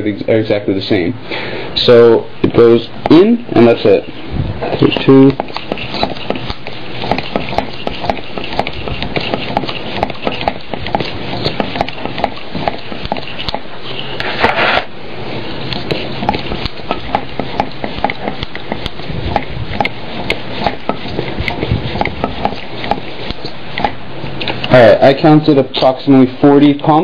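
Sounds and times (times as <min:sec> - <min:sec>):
hand pump rushing air: 0:04.7 - 0:24.8
pump clicking: 0:04.8 - 0:13.7, 0:15.7 - 0:24.8.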